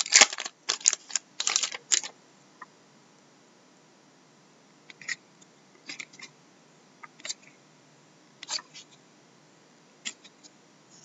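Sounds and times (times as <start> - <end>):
trading cards clicking: 0.0 - 2.1.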